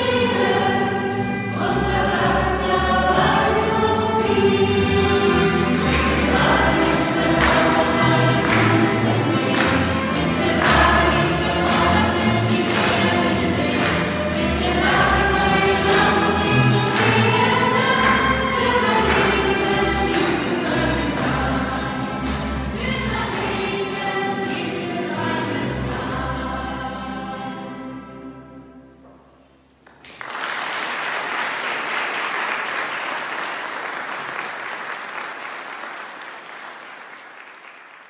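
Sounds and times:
voices singing worship song: 0.0s - 28.0s
applause: 5.8s - 20.9s, 29.8s - 38.0s.

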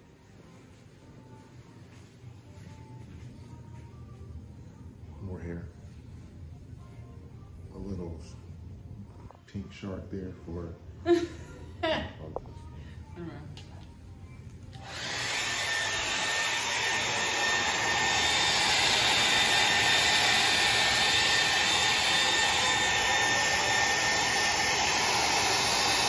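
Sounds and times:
hair dryer blowing: 14.7s - 26.0s.

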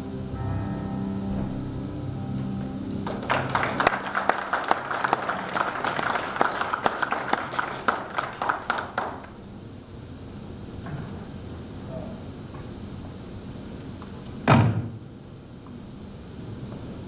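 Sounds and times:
music notes: 0.0s - 7.8s
congregation applauding: 3.0s - 9.4s.

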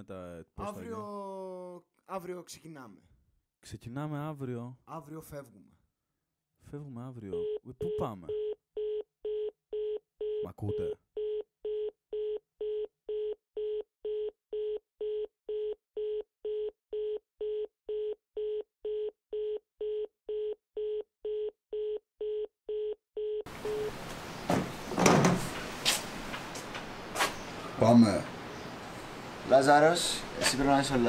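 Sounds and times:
telephone busy tone: 11.2s - 24.0s
sharp knocks: 24.1s - 26.9s.

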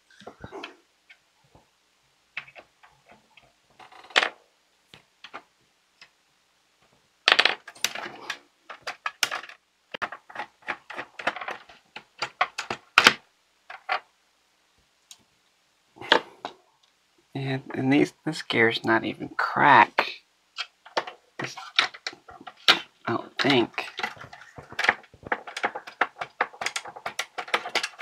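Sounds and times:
plastic gears clicking and clattering: 7.3s - 14.1s, 20.6s - 28.0s.

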